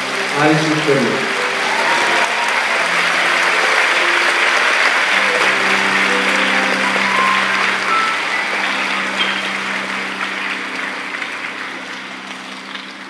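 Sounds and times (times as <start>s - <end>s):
audience applauding: 0.0s - 13.0s
soft background music: 0.0s - 13.0s.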